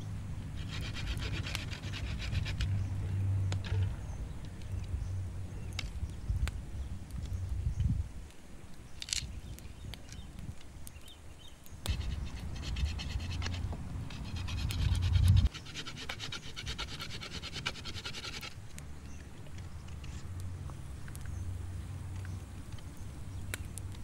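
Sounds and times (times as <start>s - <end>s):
hatchet scraping bark off stick: 0.6s - 2.9s, 11.9s - 18.6s
low rumble: 11.9s - 15.5s.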